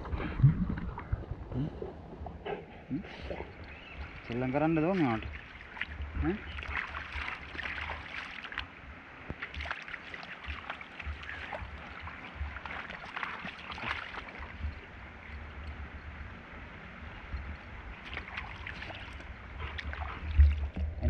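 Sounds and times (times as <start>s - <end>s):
low rumble: 0.0s - 4.4s
flowing river: 0.0s - 21.0s
dog splashing through river: 3.4s - 14.9s, 17.9s - 20.9s.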